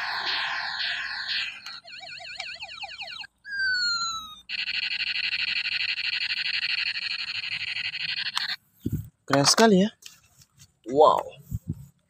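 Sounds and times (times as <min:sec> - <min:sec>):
pulsing electronic buzz: 0:00.0 - 0:02.1
toy pistol siren-like warble: 0:00.0 - 0:08.5.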